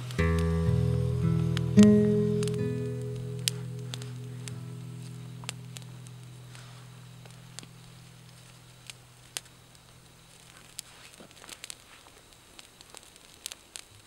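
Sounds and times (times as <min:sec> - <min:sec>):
acoustic guitar music: 0:00.0 - 0:10.4
campfire crackling and popping: 0:00.0 - 0:14.0.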